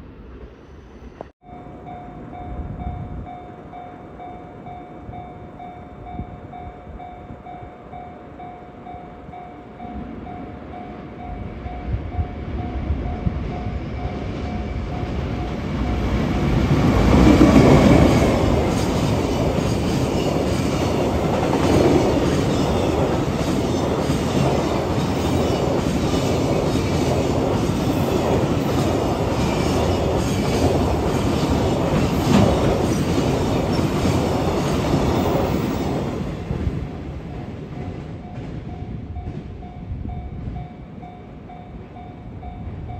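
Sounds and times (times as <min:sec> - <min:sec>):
electric locomotive passing: 0:00.0 - 0:42.9
level crossing warning bell: 0:01.4 - 0:17.2.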